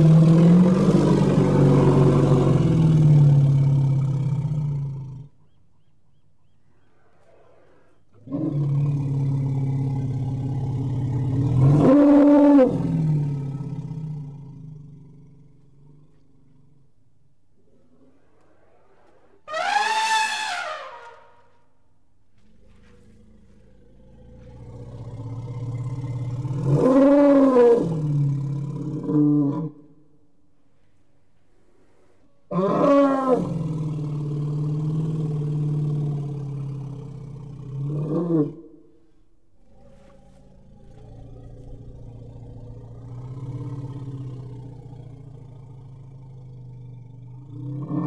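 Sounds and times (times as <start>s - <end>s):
elephant rumbling and calling: 17.7s - 21.4s.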